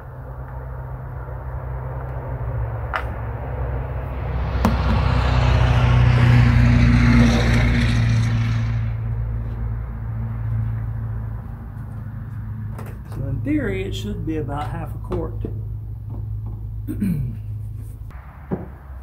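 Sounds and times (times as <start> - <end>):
vehicle passing by: 0.0 - 14.5.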